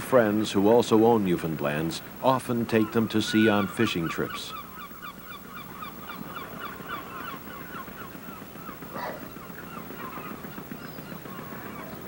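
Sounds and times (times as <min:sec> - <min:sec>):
gulls calling: 0:00.0 - 0:12.0
low background noise: 0:00.0 - 0:12.0.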